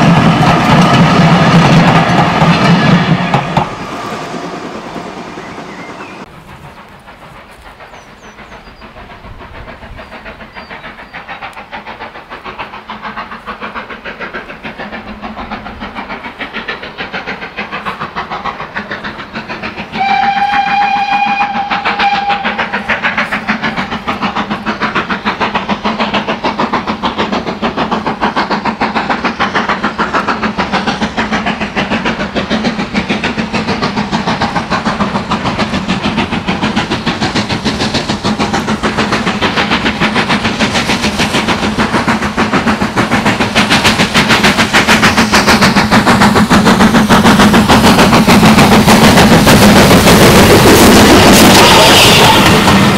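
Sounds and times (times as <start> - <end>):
steam locomotive chuffing: 0.0 - 52.9
steam whistle blast: 20.0 - 22.9.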